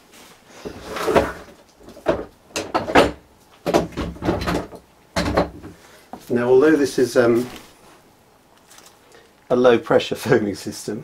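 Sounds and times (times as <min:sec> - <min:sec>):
clamps knocking and clattering: 0:01.2 - 0:05.8.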